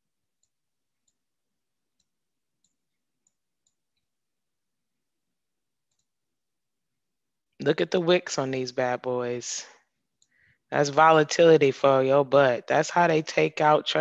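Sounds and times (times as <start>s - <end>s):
computer mouse clicks: 5.8s - 6.2s.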